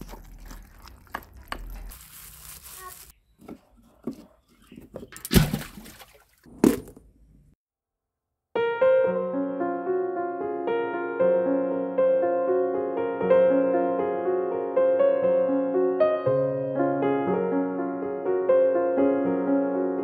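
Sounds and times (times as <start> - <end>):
soft piano music: 8.6 - 20.0.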